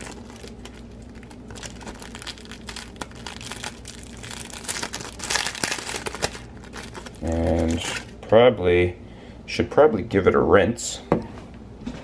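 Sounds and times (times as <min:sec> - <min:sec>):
plastic sleeve crinkling: 0:00.0 - 0:08.2.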